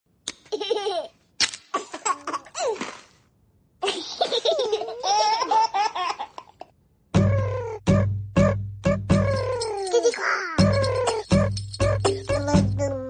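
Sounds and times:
baby laughing: 0.5s - 1.1s, 3.8s - 6.7s, 9.2s - 12.7s.

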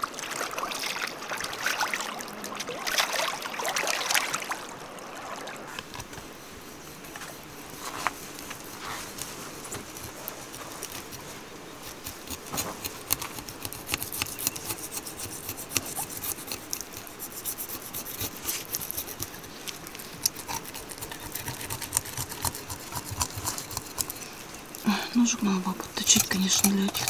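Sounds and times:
knife scraping and cutting: 5.9s - 24.8s, 25.7s - 27.0s.

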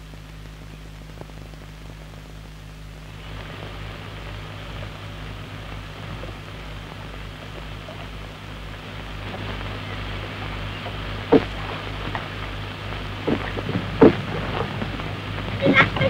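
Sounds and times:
film soundtrack hiss: 0.0s - 16.0s
low mains hum: 0.0s - 16.0s
oars knocking: 10.7s - 16.0s.

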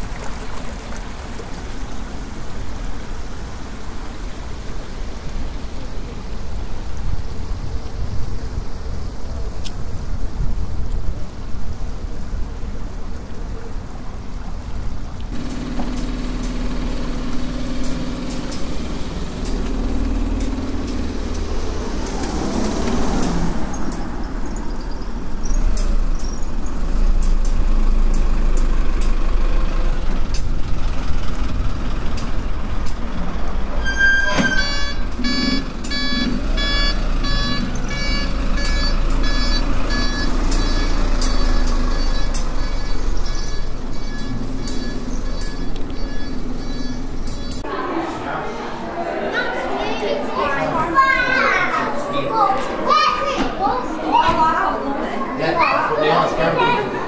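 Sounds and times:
low rumble of traffic: 0.0s - 57.0s
high electronic beeping: 33.9s - 47.6s.

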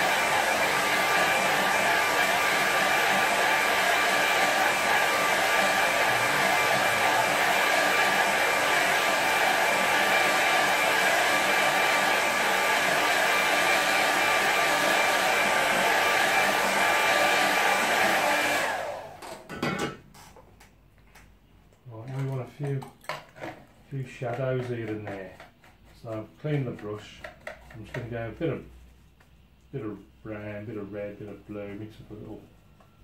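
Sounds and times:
hair dryer running: 0.0s - 19.5s.

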